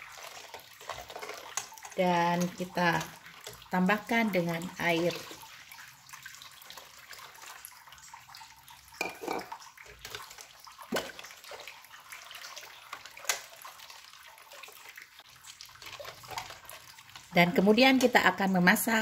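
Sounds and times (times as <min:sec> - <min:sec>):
spatula stirring sloshing liquid: 0:00.0 - 0:19.0
water pouring into pot: 0:00.0 - 0:19.0
knocks on pot: 0:09.0 - 0:09.5.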